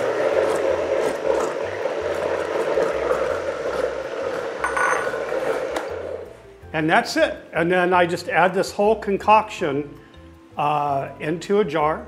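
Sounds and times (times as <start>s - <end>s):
blender motor running: 0.0s - 6.3s.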